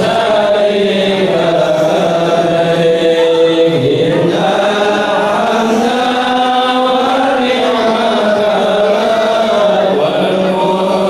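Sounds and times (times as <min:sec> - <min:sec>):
voices chanting slow melody: 0:00.0 - 0:11.0.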